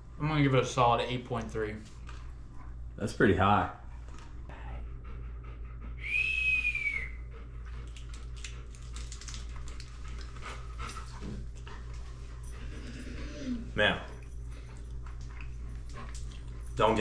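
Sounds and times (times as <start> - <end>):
crisp taco being chewed: 7.6 - 12.0, 14.3 - 16.6
dog whining: 12.6 - 13.9.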